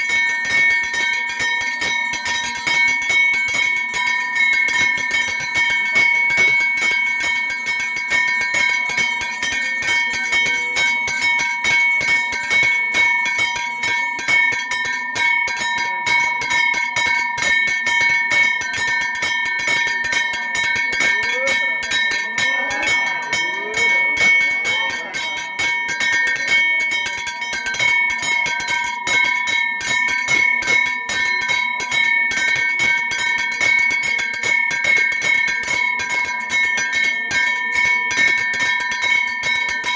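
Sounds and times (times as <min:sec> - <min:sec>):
bell ringing rapidly: 0:00.0 - 0:39.9
voices: 0:07.0 - 0:14.5, 0:19.2 - 0:29.7.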